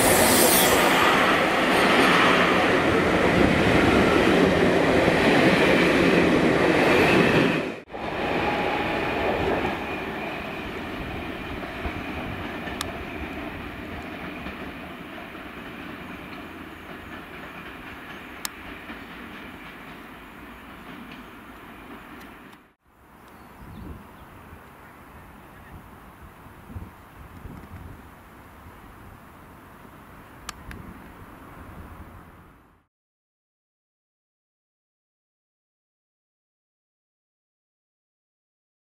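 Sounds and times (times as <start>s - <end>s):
train rolling on curved track: 0.0s - 22.8s
train coaches rolling past: 0.0s - 23.2s.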